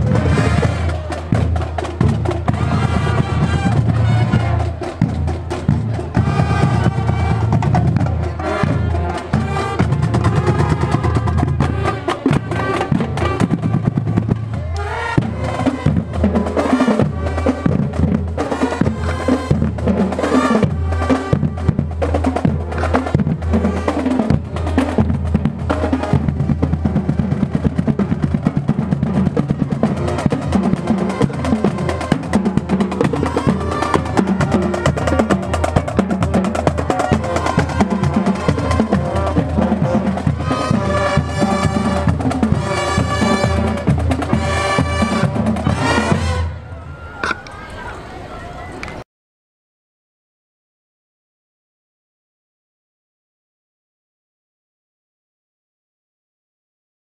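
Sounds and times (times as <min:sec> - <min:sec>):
marching bass drums: 0:00.0 - 0:46.5
snare drums: 0:00.0 - 0:46.5
marching band melody: 0:00.0 - 0:47.3.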